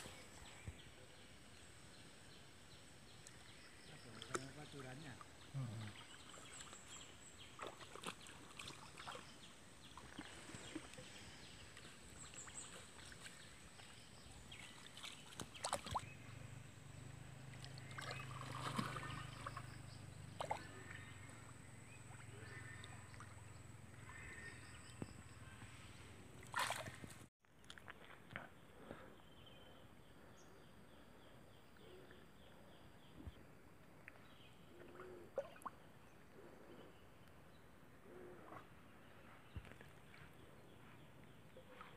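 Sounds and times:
light splashes in water: 14.6s - 16.1s, 17.5s - 21.2s, 26.4s - 27.8s.

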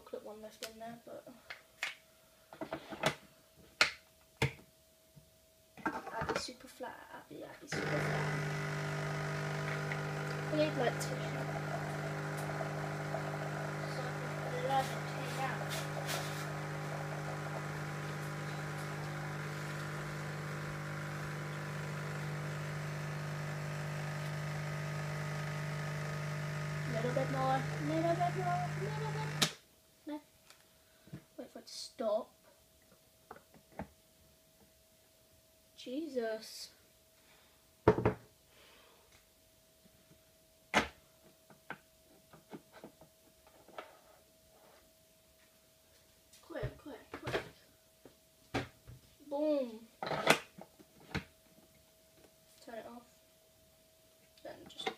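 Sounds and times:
coffee machine pump buzzing: 7.7s - 29.6s.

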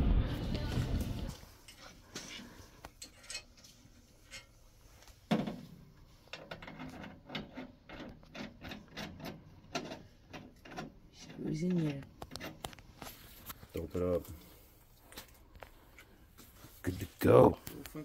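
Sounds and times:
clicks and rubbing on pipe fitting: 1.7s - 5.2s, 6.3s - 16.5s.

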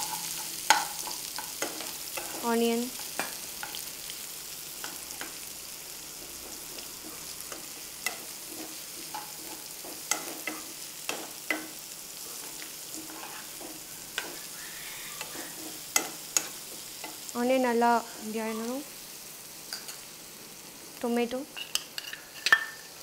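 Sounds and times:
spatula scraping and tapping pan: 0.0s - 3.9s, 6.1s - 17.3s, 21.6s - 23.0s
onions sizzling in oil: 0.0s - 23.0s.

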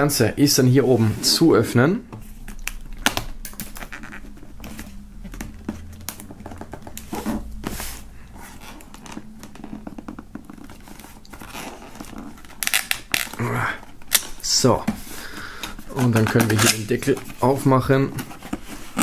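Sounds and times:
tape peeling off cardboard: 8.6s - 13.4s.

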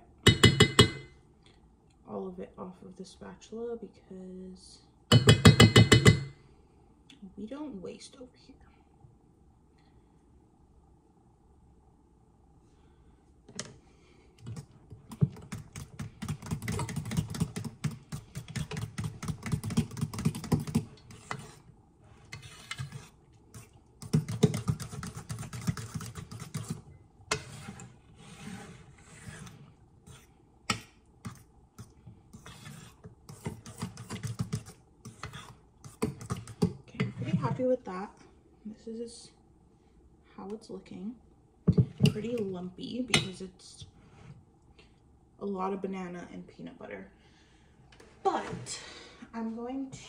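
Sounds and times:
spatula scraping batter in bowl: 14.5s - 37.7s.

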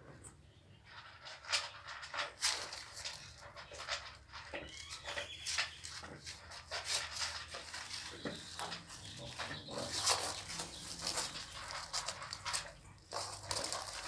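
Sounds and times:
puppies whimpering and squeaking: 3.2s - 13.9s
puppies high whines: 4.5s - 5.6s.

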